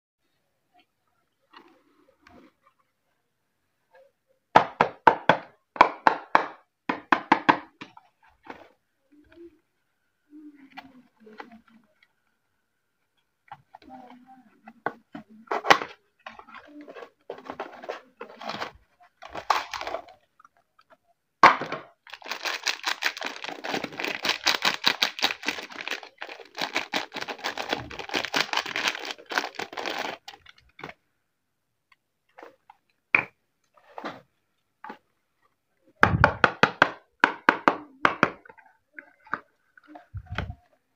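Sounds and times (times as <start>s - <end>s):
paper tearing and crinkling: 22.0s - 30.5s.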